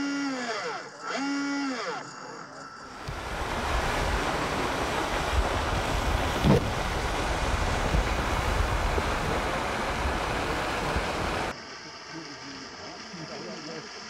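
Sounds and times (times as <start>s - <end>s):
wind buffeting microphone: 3.0s - 11.5s.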